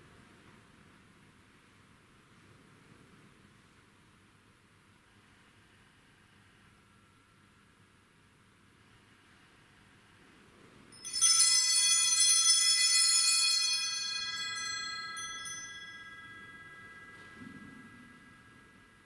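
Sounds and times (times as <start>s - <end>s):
altar bells jingling: 11.0s - 19.0s.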